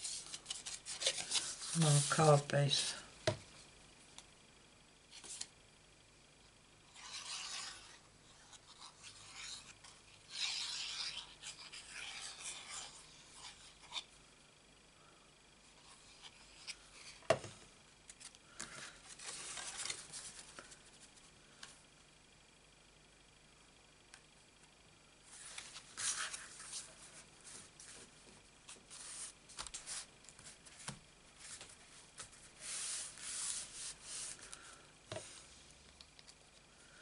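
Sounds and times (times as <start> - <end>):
card stock rustling and scraping: 0.0 - 3.0, 18.1 - 20.8, 25.3 - 28.1.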